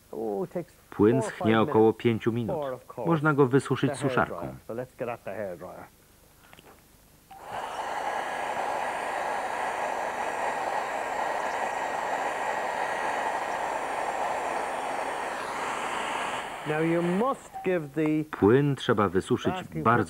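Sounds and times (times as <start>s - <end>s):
hair dryer running: 7.3s - 17.5s.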